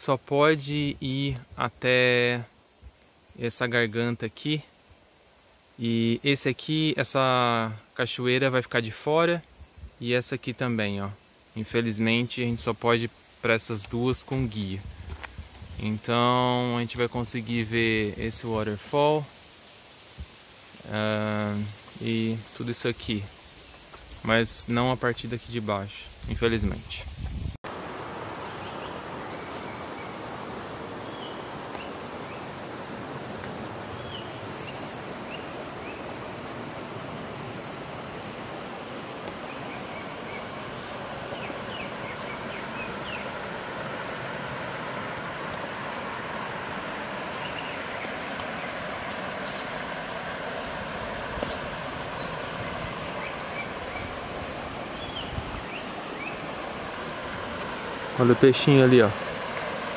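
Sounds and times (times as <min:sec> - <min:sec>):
high insect drone: 0:00.0 - 0:59.9
soft background hiss: 0:00.0 - 0:59.9
bird chirps: 0:31.0 - 0:36.0, 0:41.3 - 0:43.4, 0:52.1 - 0:57.1
bird trill: 0:34.0 - 0:36.0.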